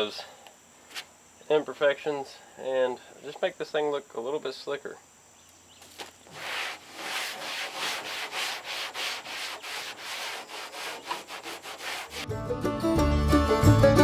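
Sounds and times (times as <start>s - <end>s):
rag rubbing on metal: 6.3s - 12.3s.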